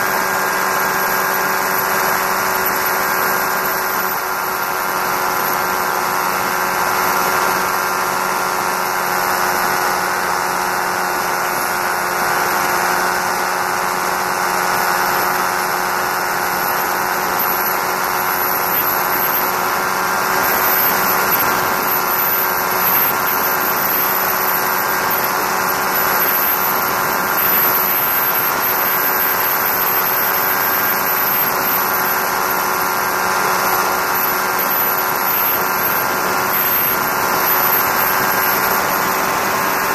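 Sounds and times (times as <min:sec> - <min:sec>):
aircraft engine and propeller: 0:00.0 - 0:39.9.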